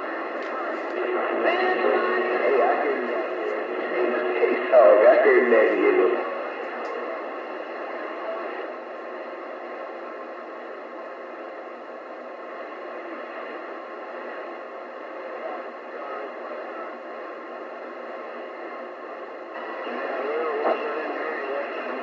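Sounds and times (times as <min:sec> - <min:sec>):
distant radio voice: 0:00.0 - 0:08.7, 0:15.2 - 0:17.1, 0:19.6 - 0:22.0
radio static hiss: 0:00.0 - 0:22.0.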